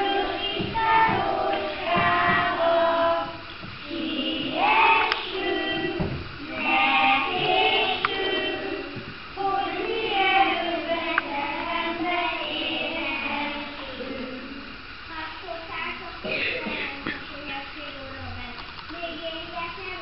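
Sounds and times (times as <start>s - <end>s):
children singing: 0.0s - 14.9s.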